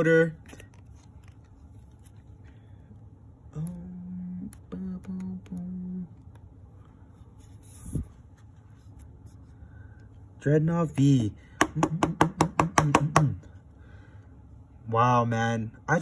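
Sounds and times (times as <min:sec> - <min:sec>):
man humming: 0:03.5 - 0:06.2.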